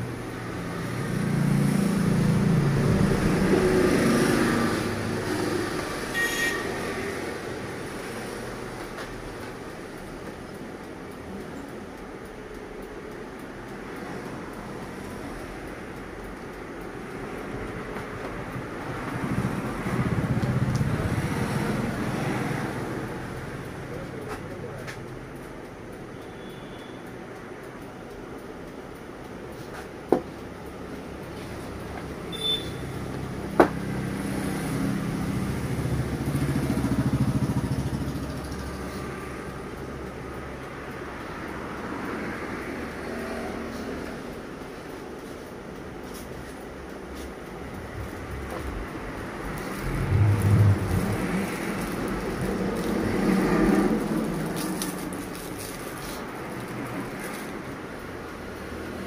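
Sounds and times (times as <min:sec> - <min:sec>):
vehicle engine passing: 0:00.0 - 0:06.1, 0:33.3 - 0:39.5, 0:47.8 - 0:57.9
high beep: 0:32.3 - 0:32.9
low steady rumble: 0:47.8 - 0:55.5.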